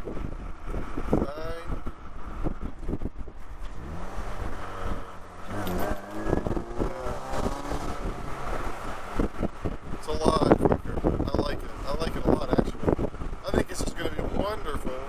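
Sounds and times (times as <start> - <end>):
wind buffeting microphone: 0.0 - 15.0
car engine accelerating: 1.8 - 11.8.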